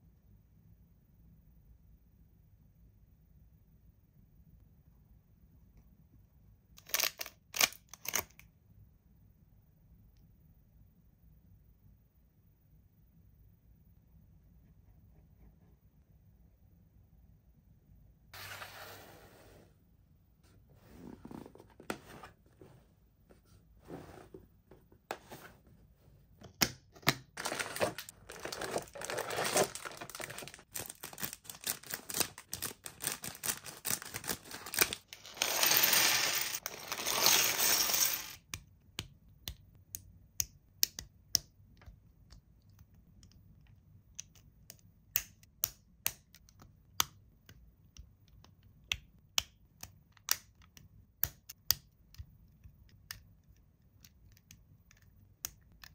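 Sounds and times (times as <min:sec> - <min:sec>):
packaging tearing: 0:27.4 - 0:37.3
plastic and cardboard crinkling: 0:27.4 - 0:37.3.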